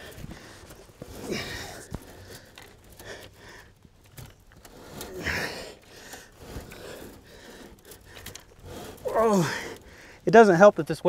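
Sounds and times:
man breathing hard: 0.0 - 3.9, 4.6 - 10.3
wire clicking and scraping: 0.0 - 11.0.

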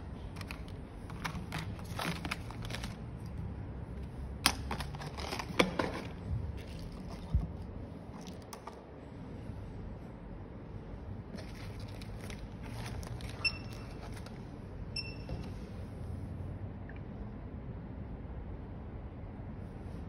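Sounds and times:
plastic clicks and rustling: 0.3 - 3.4.

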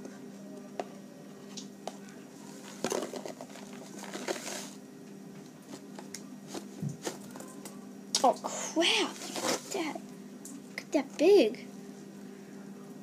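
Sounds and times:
box and spoon clicks and rustles: 2.6 - 4.8.

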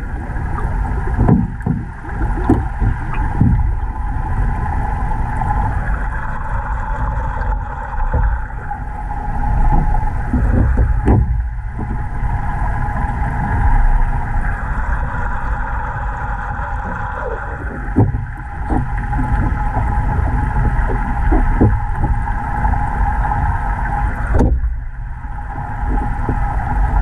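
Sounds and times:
underwater rumbling hum: 0.0 - 27.0
knocks and scrapes: 1.1 - 3.9, 9.6 - 12.2, 16.9 - 22.7, 24.3 - 24.9, 25.5 - 26.6.

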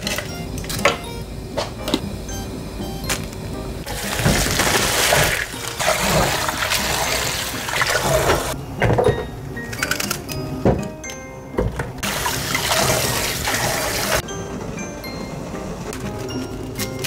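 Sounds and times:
tap water running and splashing: 3.9 - 8.6, 12.0 - 14.2.

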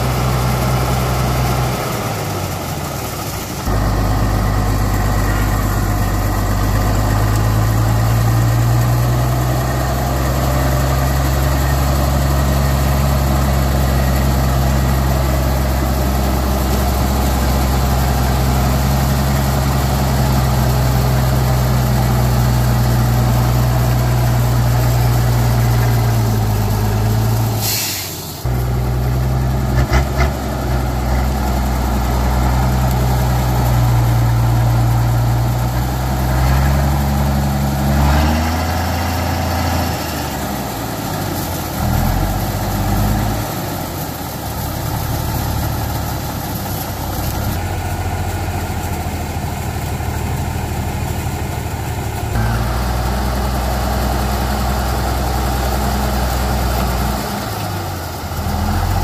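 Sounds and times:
vehicle engine running: 0.0 - 59.0
short hiss: 27.5 - 28.4.

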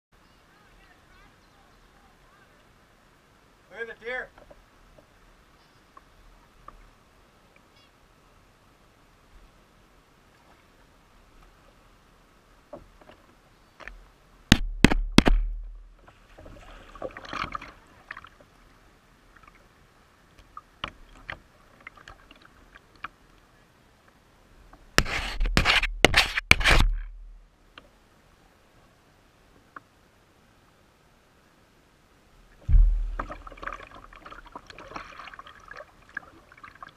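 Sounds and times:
water swishing: 15.5 - 23.2, 32.4 - 36.9
paddle knocking on kayak hull: 32.6 - 33.9.

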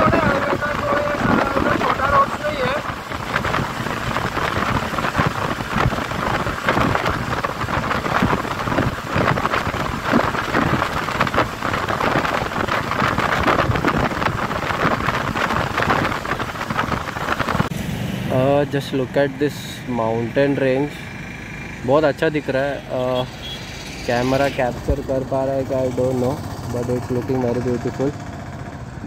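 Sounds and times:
wind buffeting microphone: 0.0 - 17.8
road and engine noise: 0.0 - 29.0.

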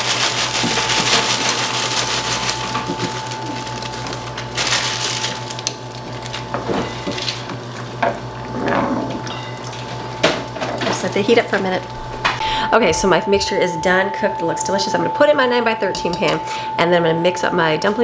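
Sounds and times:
frozen vegetables rattling into pot: 0.0 - 7.5.

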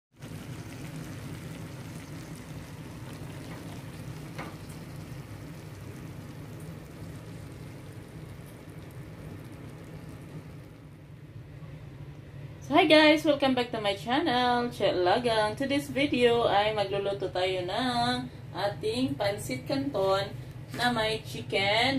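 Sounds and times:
food sizzling in a wok: 0.2 - 10.7.

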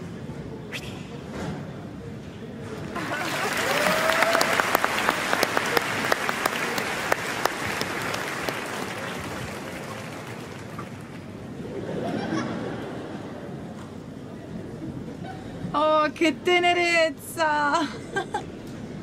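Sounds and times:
audience applauding: 2.9 - 11.4.

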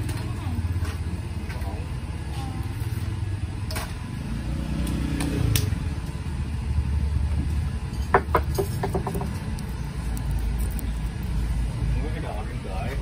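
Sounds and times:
steady low rumble: 8.7 - 13.0.

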